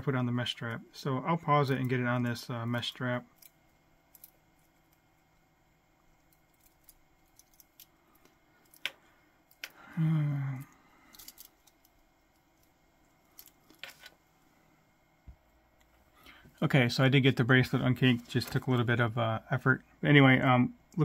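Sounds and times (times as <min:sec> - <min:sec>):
person humming or grunting: 0:09.8 - 0:10.8.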